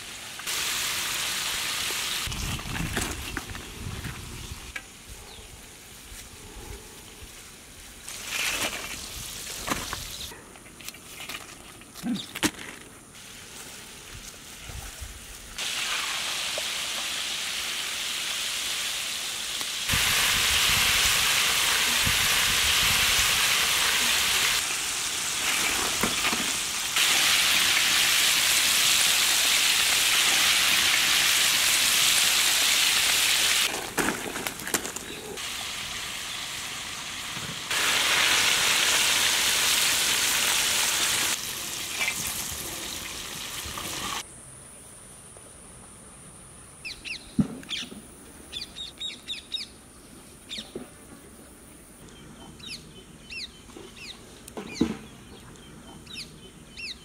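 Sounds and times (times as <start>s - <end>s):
chicken deep-frying in oil: 0.0s - 3.4s, 14.4s - 34.4s, 35.4s - 44.2s
birds chirping: 46.8s - 50.9s, 52.0s - 57.0s.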